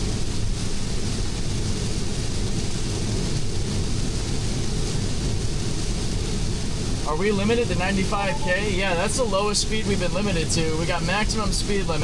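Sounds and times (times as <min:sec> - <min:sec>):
rain spray: 0:00.0 - 0:12.0
tyres on wet road: 0:04.9 - 0:12.0.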